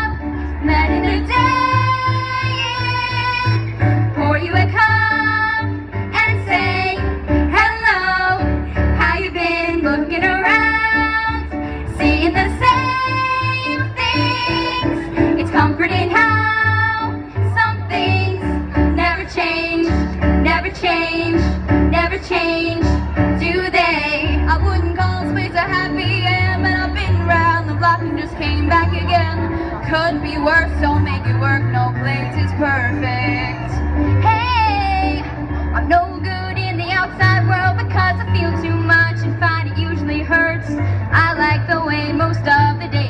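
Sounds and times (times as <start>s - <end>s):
instrumental accompaniment with bass: 0.0s - 43.0s
women singing into microphones: 0.0s - 43.0s.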